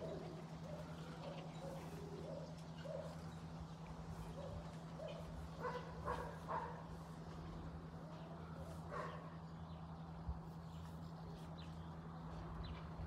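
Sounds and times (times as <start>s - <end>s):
dog barking: 4.4s - 6.9s, 8.9s - 9.3s.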